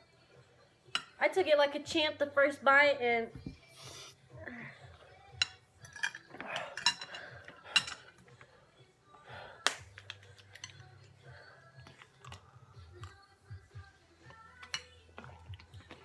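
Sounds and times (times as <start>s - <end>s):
utensils and bowls clicking: 5.4s - 8.2s, 9.7s - 11.0s, 14.3s - 16.0s.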